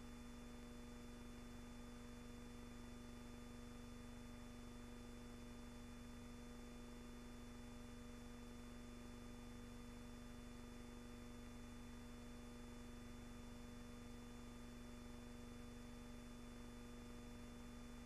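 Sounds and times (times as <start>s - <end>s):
faint hum with hiss: 0.0s - 18.0s.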